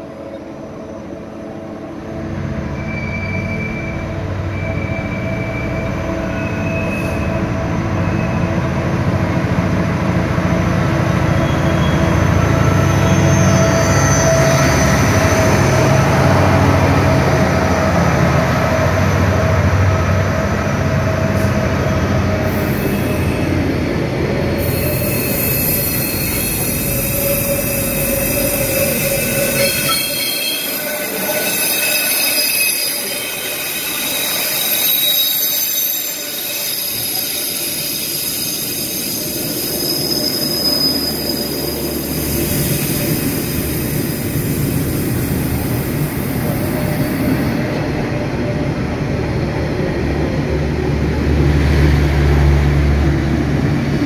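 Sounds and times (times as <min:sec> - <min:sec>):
diesel locomotive humming: 0:00.0 - 0:54.0
high-pitched wheel squeal: 0:02.7 - 0:08.5, 0:11.4 - 0:15.8, 0:24.6 - 0:43.5.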